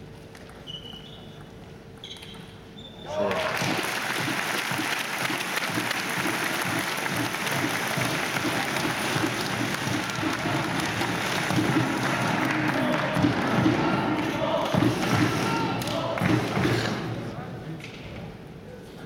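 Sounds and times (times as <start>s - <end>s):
crowd applauding and cheering: 3.1s - 16.8s.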